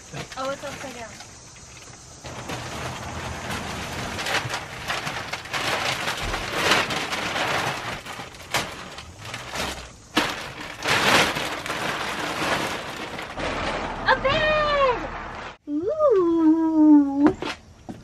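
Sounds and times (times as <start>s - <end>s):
plastic wrapping crinkling: 0.0s - 14.1s.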